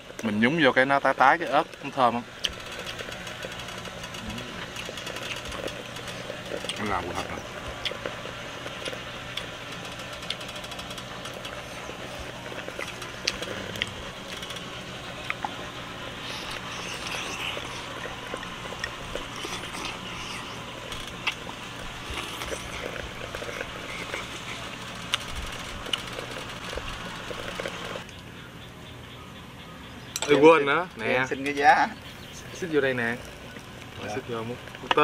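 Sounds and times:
steady low hum: 0.0 - 35.0
hot pot bubbling: 1.0 - 28.4.

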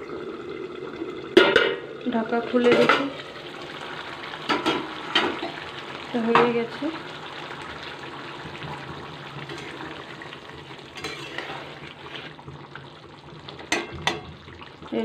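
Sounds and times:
curry simmering and sizzling: 0.0 - 15.0
spatula hitting pan: 4.5 - 5.6, 13.7 - 14.3.

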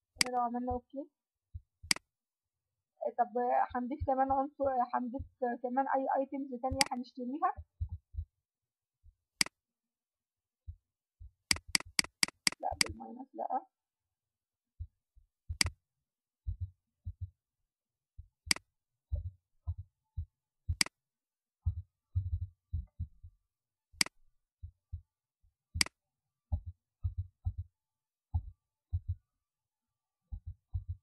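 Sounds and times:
sharp bright clicks: 11.5 - 12.9.

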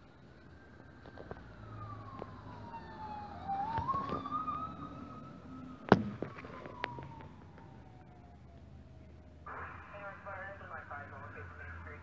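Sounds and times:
electronic siren wailing: 0.6 - 8.5.

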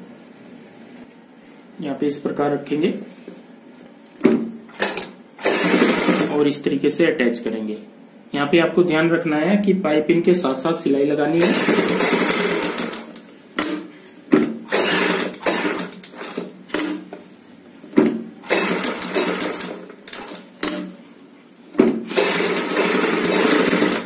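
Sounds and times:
sewing machine running: 4.7 - 6.4, 11.4 - 13.8, 14.7 - 17.0, 18.4 - 20.9, 22.1 - 24.0.

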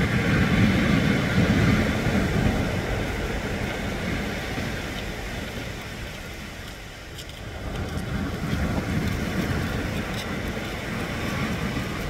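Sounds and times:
sea waves breaking on shore: 0.0 - 12.0.

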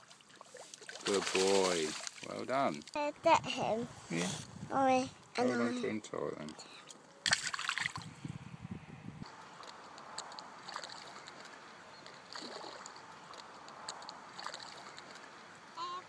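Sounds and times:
small splashes on water: 0.0 - 3.0, 7.2 - 8.1, 9.5 - 15.6
water sloshing: 0.0 - 3.7, 6.6 - 8.2, 9.3 - 16.0.

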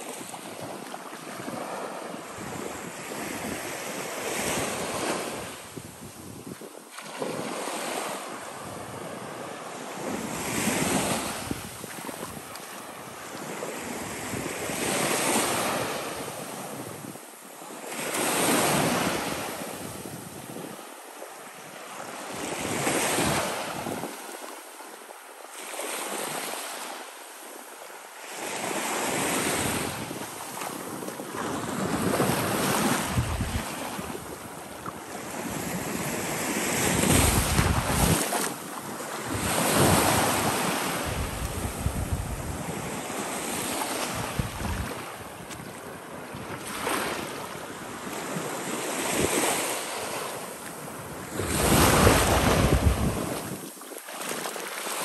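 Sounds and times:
waves washing on sandy shore: 0.0 - 55.0
wind buffeting microphone: 29.6 - 34.5, 36.8 - 38.4, 39.2 - 45.6, 51.1 - 53.6.

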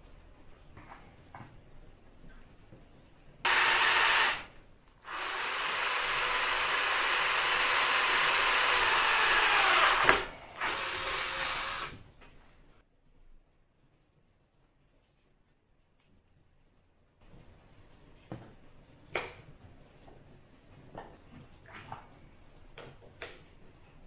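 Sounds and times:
electric drill boring: 3.5 - 12.0.

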